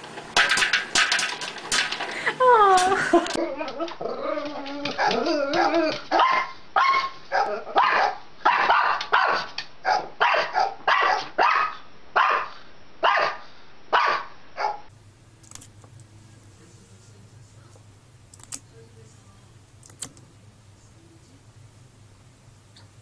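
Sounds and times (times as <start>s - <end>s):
small dog barking: 4.9s - 14.9s
faint low hum: 14.9s - 23.0s.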